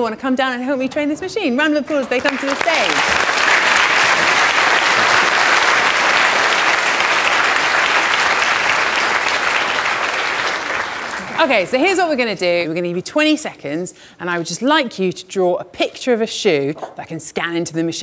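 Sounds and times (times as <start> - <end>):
audience applauding: 2.1 - 11.8.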